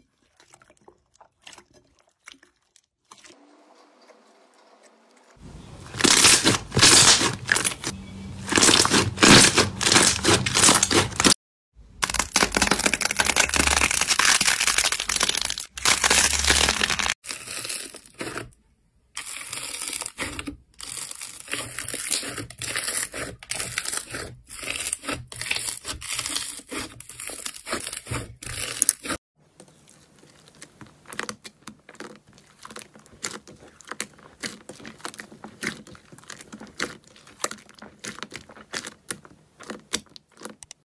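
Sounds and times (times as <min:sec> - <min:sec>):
slime squishing: 0:05.4 - 0:11.4, 0:12.0 - 0:18.5, 0:19.2 - 0:40.8
slime crackling and popping: 0:05.9 - 0:07.9, 0:08.5 - 0:11.3, 0:12.0 - 0:18.5, 0:19.2 - 0:29.1, 0:29.9 - 0:40.8.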